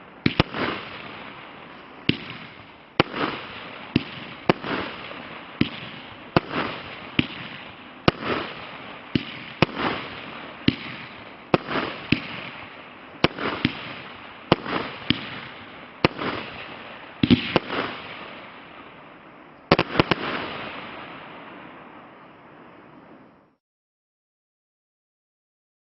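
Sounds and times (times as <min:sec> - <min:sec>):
firework hissing bursts: 0:00.0 - 0:18.8
firework bangs: 0:00.0 - 0:22.2.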